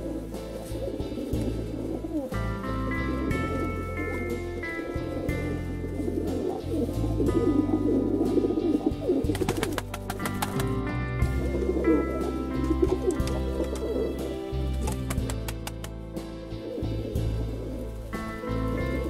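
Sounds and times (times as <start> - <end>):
instrumental background music: 0.0 - 19.0
pigeons cooing: 0.0 - 19.0
quick clicks or taps: 14.9 - 16.0.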